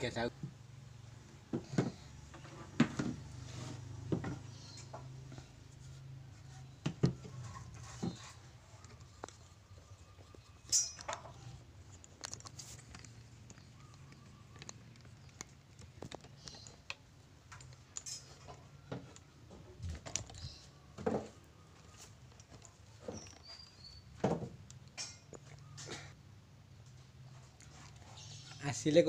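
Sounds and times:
wood and tools knocking: 0:01.4 - 0:05.5, 0:06.7 - 0:23.6.

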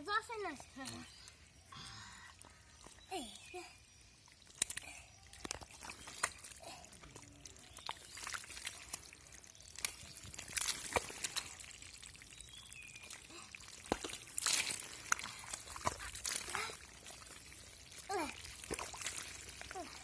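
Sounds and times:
mud squelching: 0:00.2 - 0:20.0
splashing in mud: 0:04.3 - 0:20.0.

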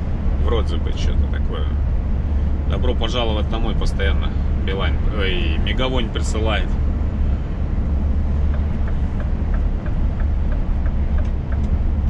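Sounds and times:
truck cab drone: 0:00.0 - 0:12.0
faint light ticks: 0:08.5 - 0:11.8.

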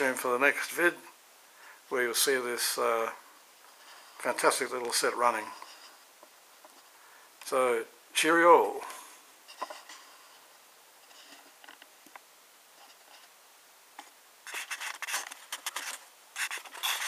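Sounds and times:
scratchy rubbing handling noise: 0:03.6 - 0:06.0, 0:09.5 - 0:11.8, 0:12.7 - 0:13.4, 0:14.0 - 0:17.0.

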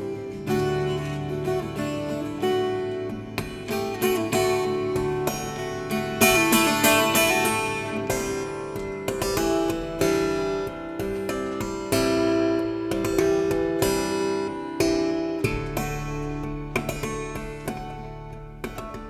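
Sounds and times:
twelve-string acoustic guitar: 0:00.0 - 0:19.0.

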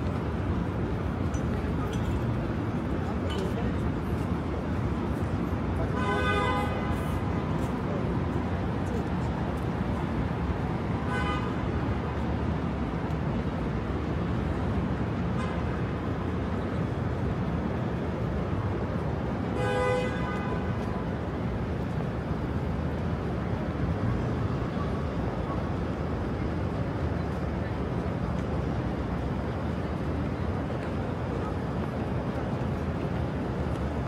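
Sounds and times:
street traffic: 0:00.0 - 0:34.0
vehicle horns honking: 0:06.0 - 0:07.1, 0:11.0 - 0:11.6, 0:19.5 - 0:20.7.

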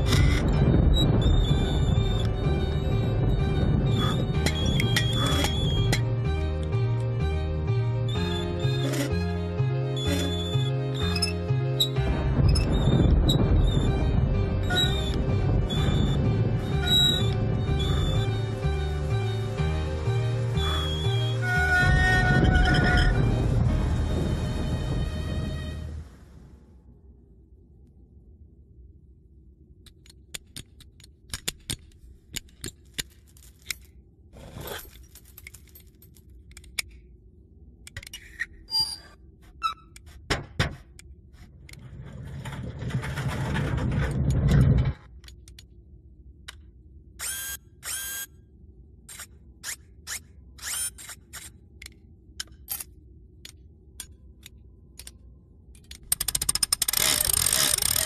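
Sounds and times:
short rising squeaks: 0:00.0 - 0:06.1, 0:10.0 - 0:18.6, 0:20.5 - 0:23.4
robot metallic clicks and clinks: 0:55.8 - 0:58.0.

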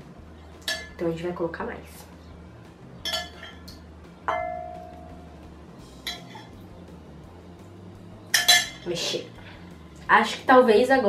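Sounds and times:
metal spoon clinking glass: 0:00.6 - 0:01.0, 0:03.0 - 0:05.2, 0:06.0 - 0:06.5, 0:08.3 - 0:08.9.

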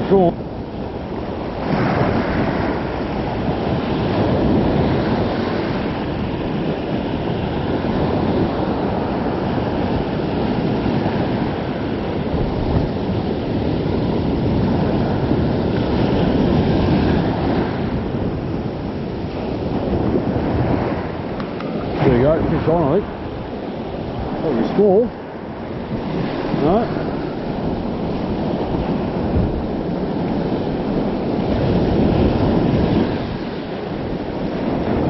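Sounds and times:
wind buffeting microphone: 0:00.0 - 0:35.0
small surf breaking on sand: 0:01.5 - 0:18.1, 0:19.3 - 0:35.0.

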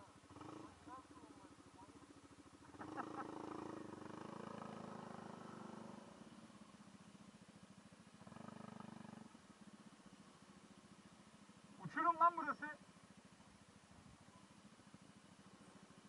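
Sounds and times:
scooter engine running: 0:00.0 - 0:11.8.

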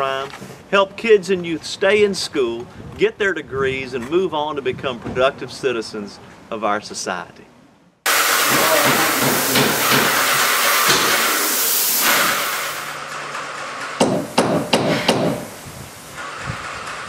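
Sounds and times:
paint sprayer hissing: 0:08.1 - 0:17.0
sharp knocks: 0:08.5 - 0:11.2, 0:13.9 - 0:15.5.

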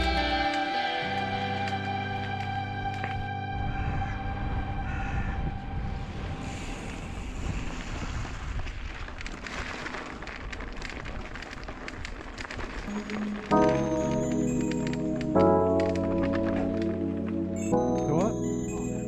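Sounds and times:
background music: 0:00.0 - 0:06.2, 0:12.9 - 0:19.0
wind rushing over microphone: 0:03.6 - 0:12.9
bike rattling clicks and knocks: 0:08.8 - 0:13.4.

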